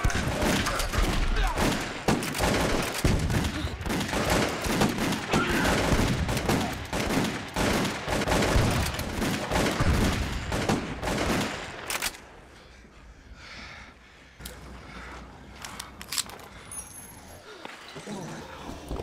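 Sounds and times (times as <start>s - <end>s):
rapid gunfire: 0.0s - 12.1s.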